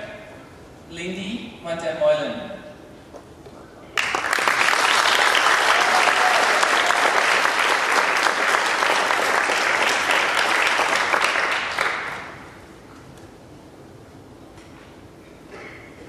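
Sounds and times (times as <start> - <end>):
audience applauding: 4.0 - 12.5.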